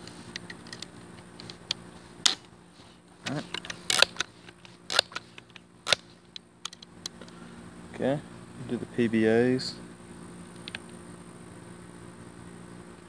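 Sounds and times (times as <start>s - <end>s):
air pistol pump lever clicking: 3.3s - 7.4s.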